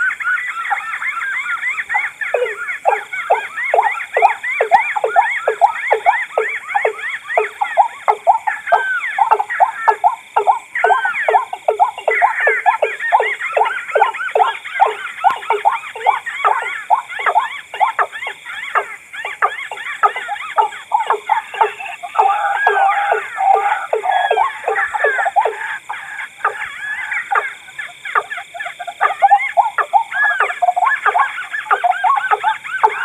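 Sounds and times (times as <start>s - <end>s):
downward-sweeping bird calls: 0.0s - 33.0s
overlapping bird calls: 0.0s - 33.0s.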